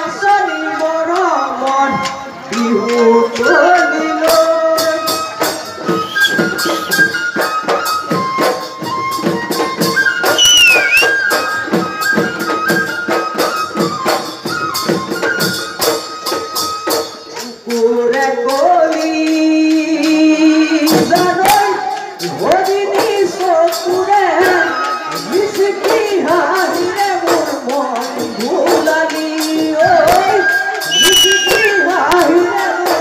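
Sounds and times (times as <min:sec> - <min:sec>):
drums beating: 0:04.2 - 0:33.0
wind instrument melody: 0:04.7 - 0:17.4, 0:30.0 - 0:33.0.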